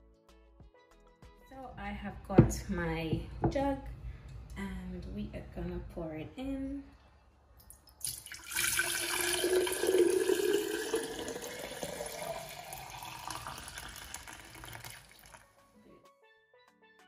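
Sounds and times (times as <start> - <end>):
liquid pouring into a jug: 7.9 - 15.5.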